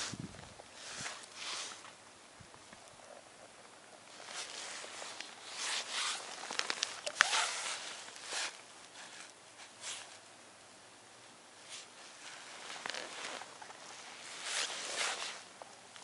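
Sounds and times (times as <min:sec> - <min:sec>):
padded jacket rustling: 0:00.8 - 0:02.0, 0:04.1 - 0:10.2, 0:11.6 - 0:15.5
crunching snow: 0:04.1 - 0:09.2.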